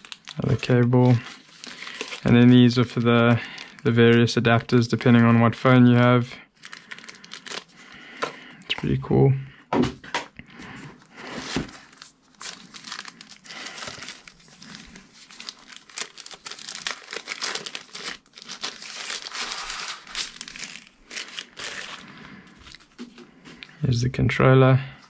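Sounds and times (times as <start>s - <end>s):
plastic bag crinkling: 0.0s - 5.2s, 6.6s - 8.2s, 11.2s - 23.7s.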